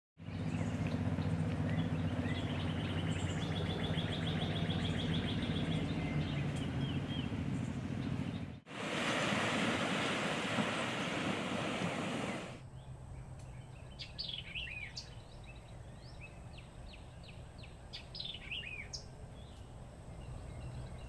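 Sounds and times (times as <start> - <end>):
low mechanical hum: 0.2 - 8.6
birds chirping: 0.2 - 8.7, 10.5 - 12.9
rush of wind and water: 8.7 - 12.6.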